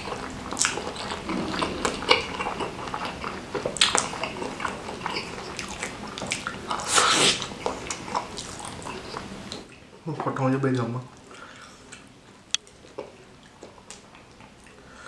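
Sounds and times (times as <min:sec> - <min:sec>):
chewing food close up: 0:00.0 - 0:09.7.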